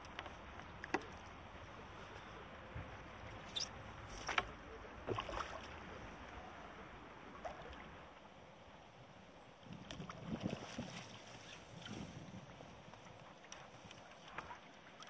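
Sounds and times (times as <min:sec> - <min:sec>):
steady outdoor hiss: 0:00.0 - 0:10.3.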